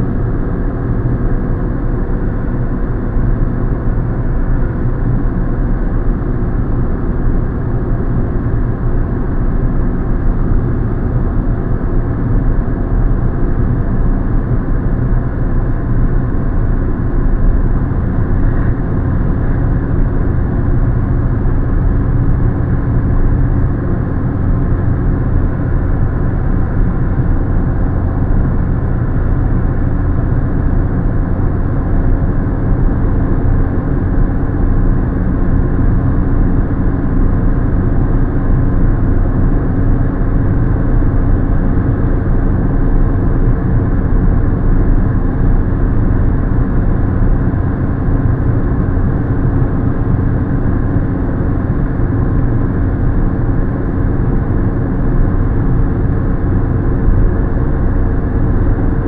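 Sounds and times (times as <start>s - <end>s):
car engine hum: 0.0s - 59.0s.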